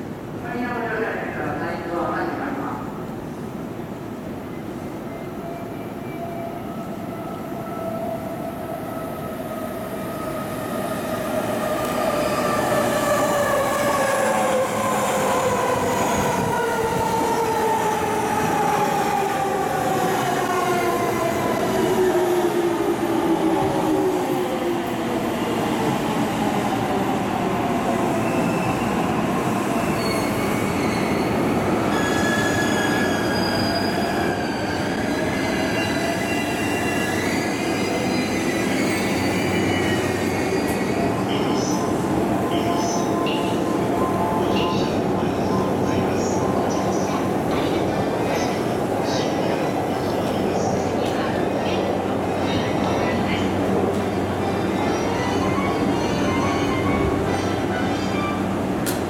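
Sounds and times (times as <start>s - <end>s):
train wheel squeal: 28.2s - 41.9s.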